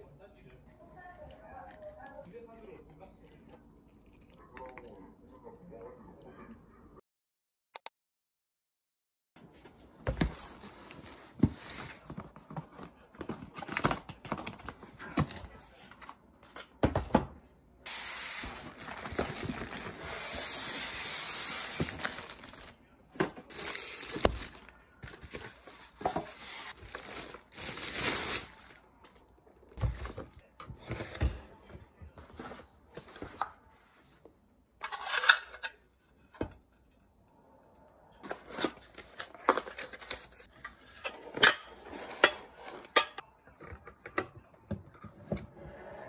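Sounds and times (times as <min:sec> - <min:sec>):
plastic wrapping rustling: 0:17.9 - 0:22.8, 0:23.4 - 0:30.4.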